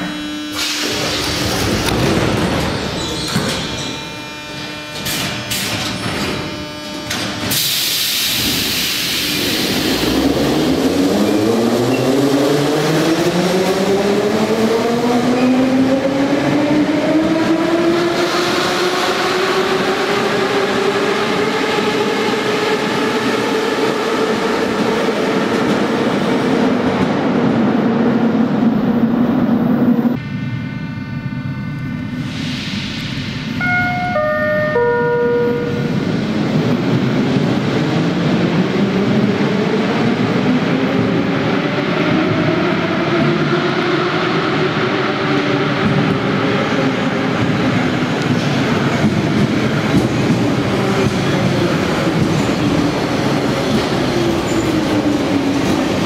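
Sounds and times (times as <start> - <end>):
train doors shutting with thud: 0.5 - 9.8
wheels rumbling on rail: 32.0 - 56.0.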